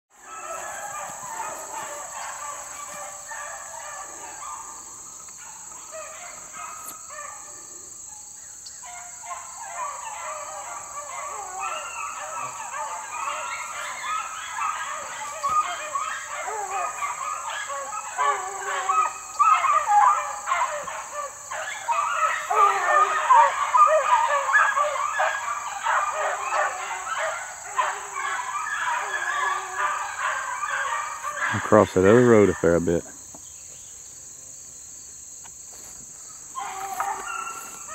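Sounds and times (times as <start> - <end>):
dogs baying: 0.2 - 7.8, 8.8 - 33.0, 36.5 - 37.9
high insect drone: 0.2 - 37.9.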